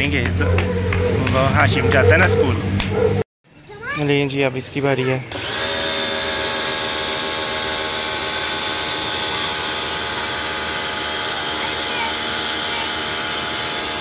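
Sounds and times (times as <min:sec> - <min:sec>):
pressure washer motor whining: 0:05.3 - 0:14.0.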